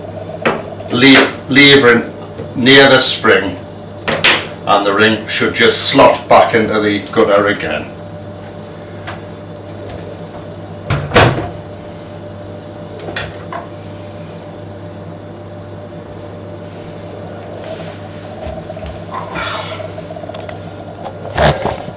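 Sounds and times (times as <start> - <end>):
steady low hum: 0.0 - 21.9.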